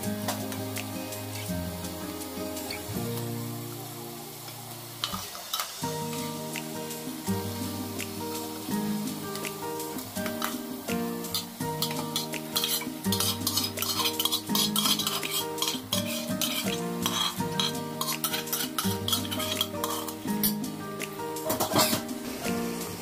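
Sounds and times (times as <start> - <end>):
background music with held chords: 0.0 - 5.0, 5.8 - 23.0
chicken sizzling in oil: 0.0 - 23.0
spoon clinking against pot: 11.2 - 20.6
metal spoon scraping pot: 11.3 - 20.2.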